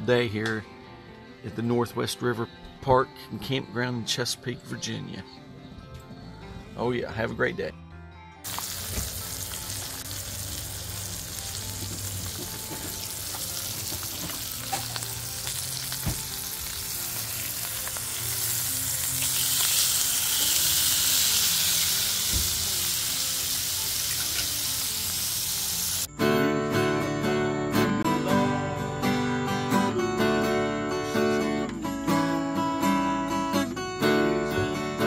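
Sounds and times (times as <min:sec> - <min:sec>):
steak sizzling on griddle: 0:08.5 - 0:26.1.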